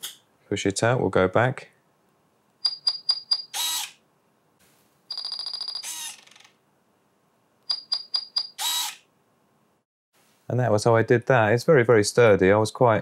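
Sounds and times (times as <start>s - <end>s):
short high beeps: 7.7s - 8.6s
servo whirring: 8.6s - 9.0s.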